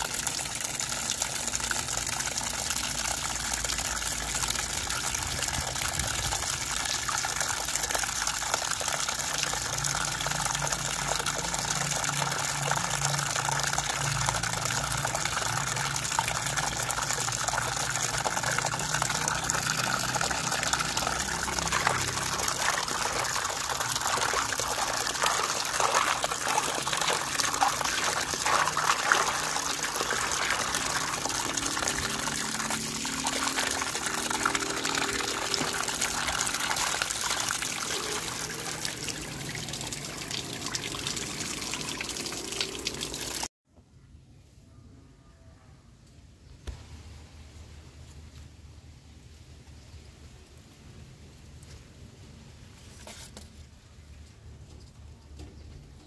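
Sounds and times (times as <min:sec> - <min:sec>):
water pouring into basin: 0:00.0 - 0:43.5.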